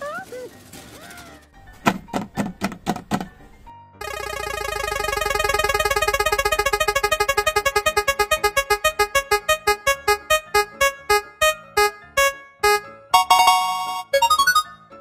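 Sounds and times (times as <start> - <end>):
spinning wheel electronic notes: 4.0 - 14.8.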